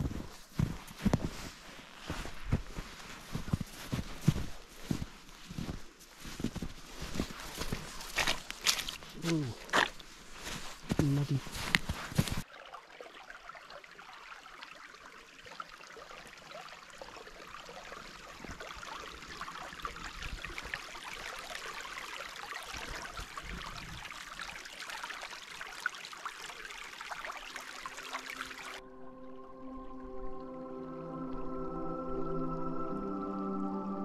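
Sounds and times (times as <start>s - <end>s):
creek water rushing: 2.0s - 28.8s
background music: 28.8s - 34.0s.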